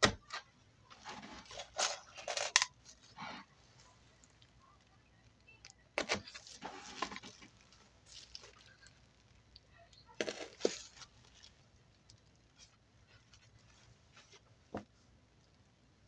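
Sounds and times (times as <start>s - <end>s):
plastic sheeting crinkling: 6.2s - 9.0s.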